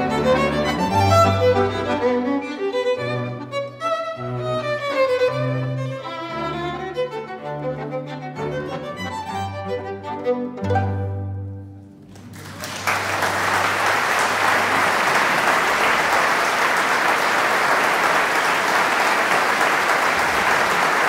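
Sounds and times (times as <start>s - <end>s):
violin and cello chord: 0.0s - 11.6s
audience applause: 12.0s - 21.0s.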